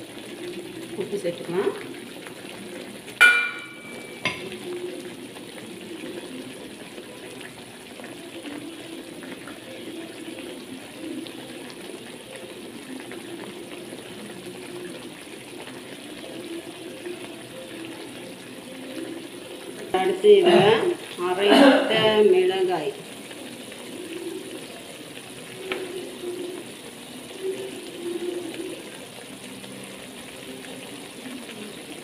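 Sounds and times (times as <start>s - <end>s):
ringing metal clang: 3.2s - 4.5s.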